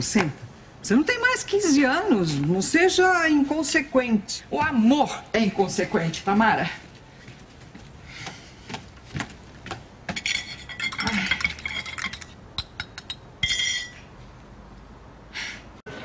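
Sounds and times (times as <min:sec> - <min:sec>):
china teacups clinking: 0:10.1 - 0:14.0.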